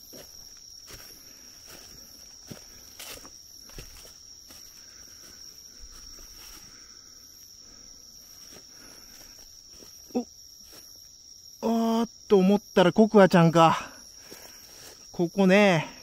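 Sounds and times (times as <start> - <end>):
faint footsteps: 0.0 - 7.5, 8.2 - 10.9
night insects trilling: 0.0 - 16.0.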